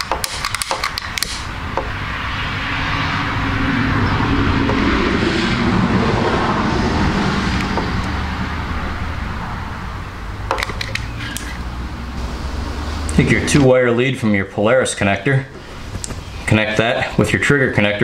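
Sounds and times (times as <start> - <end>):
sharp clicks: 0.0 - 1.9, 10.5 - 11.6.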